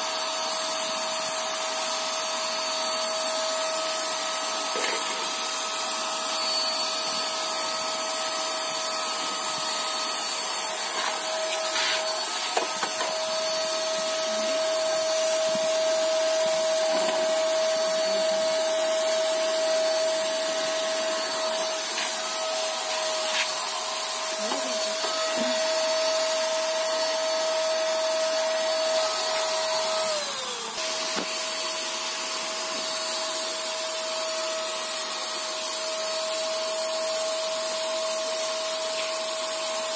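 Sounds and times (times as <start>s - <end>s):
paint spray gun motor whine: 0.0s - 39.9s
spray hiss: 10.0s - 12.6s.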